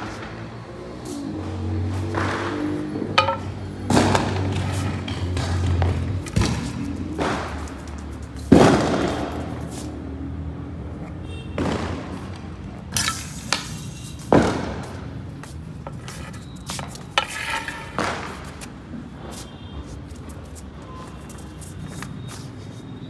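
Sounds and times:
ball knocking on concrete floor: 2.1 - 9.5, 13.0 - 18.8.

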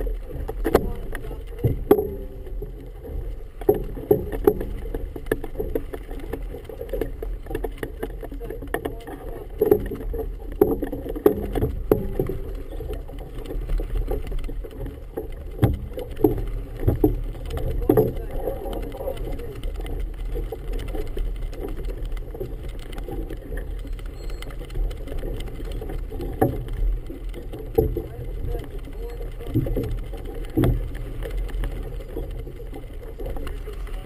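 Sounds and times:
water slapping against hull: 0.0 - 34.0
knocks on hull: 0.5 - 2.6.

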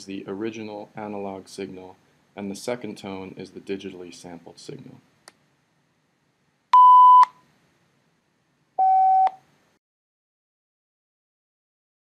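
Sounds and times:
sine-tone beeps: 6.8 - 7.3, 8.8 - 9.4
beep onset clicks: 6.8 - 7.4, 8.8 - 9.4.

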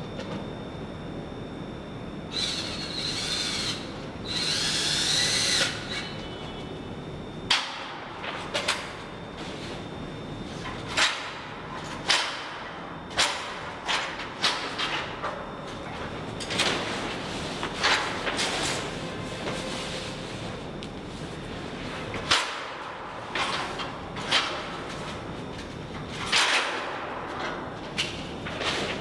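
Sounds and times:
power drill whining: 2.3 - 6.1.

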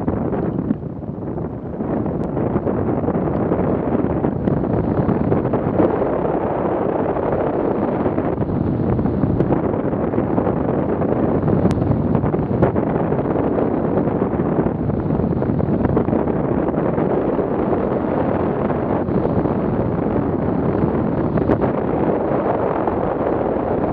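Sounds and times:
wind rushing over microphone: 0.0 - 23.9.

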